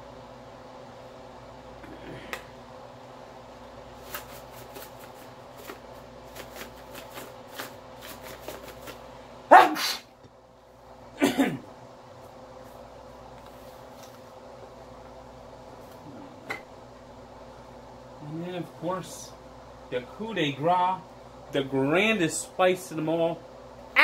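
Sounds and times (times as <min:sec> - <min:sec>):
man's short vocal bursts: 0:09.6 - 0:10.1.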